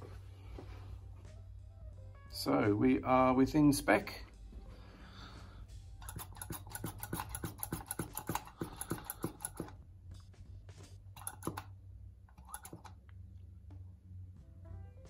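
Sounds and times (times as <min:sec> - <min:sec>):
hand vacuum pump clicking: 0:06.0 - 0:09.8, 0:11.2 - 0:11.7, 0:12.3 - 0:13.0.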